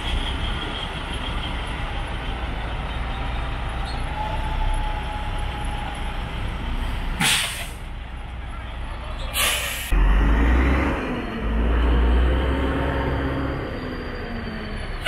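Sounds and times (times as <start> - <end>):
air brakes hissing: 6.8 - 7.9, 9.2 - 9.9.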